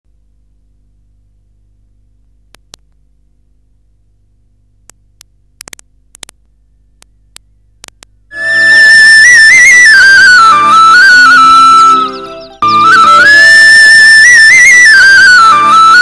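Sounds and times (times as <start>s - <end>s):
low electrical hum: 0.0s - 8.4s
sharp clicks: 2.5s - 3.0s, 4.8s - 8.2s.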